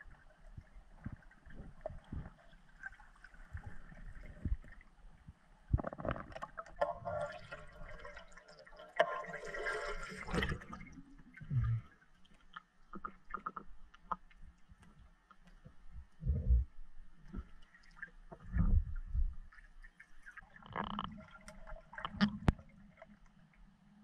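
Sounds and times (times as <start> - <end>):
water gurgling and splashing: 0.0 - 4.9, 5.7 - 13.8, 17.2 - 23.2
small splashes and drips: 0.0 - 15.8, 17.2 - 18.7, 19.4 - 23.8.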